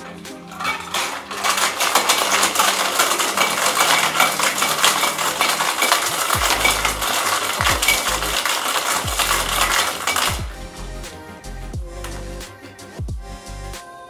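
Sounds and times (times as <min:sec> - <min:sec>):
ice rattling in cocktail shaker: 0:00.0 - 0:10.6.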